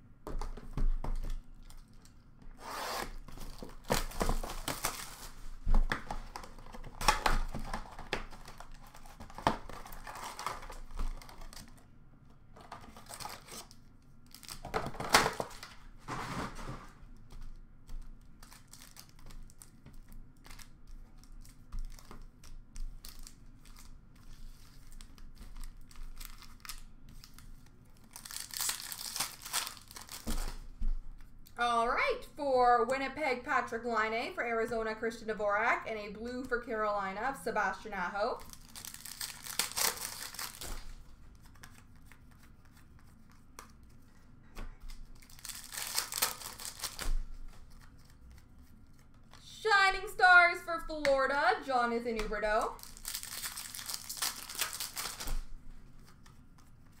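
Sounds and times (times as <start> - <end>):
card packs tearing open: 2.6 - 5.5, 6.3 - 11.8, 12.6 - 16.5, 18.4 - 19.8, 28.0 - 30.6, 38.4 - 41.0, 45.2 - 47.1, 52.6 - 55.4
wrappers crinkling: 6.3 - 11.8, 18.2 - 30.7, 38.0 - 43.9, 44.8 - 49.5, 51.6 - 57.0.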